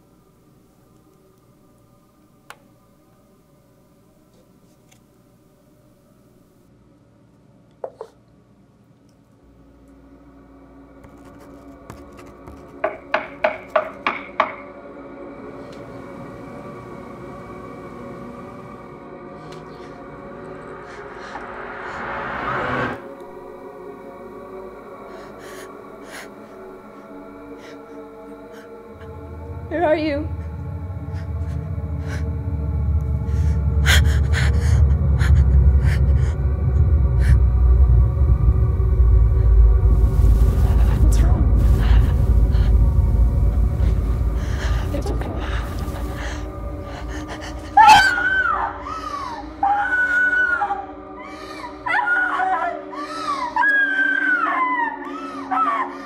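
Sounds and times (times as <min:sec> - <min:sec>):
low drone of held tones: 0:09.4 - 0:56.0
woman gasping: 0:40.4 - 0:49.5.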